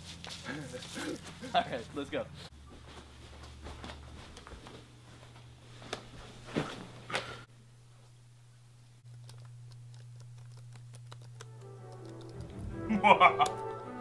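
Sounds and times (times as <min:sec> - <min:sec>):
low steady hum: 0:00.0 - 0:12.8
person moving on a bed: 0:02.5 - 0:07.4.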